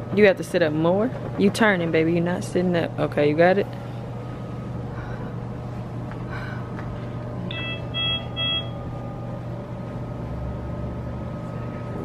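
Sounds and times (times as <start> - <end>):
steady low hum: 0.0 - 12.0
medical equipment beeps: 7.5 - 8.8.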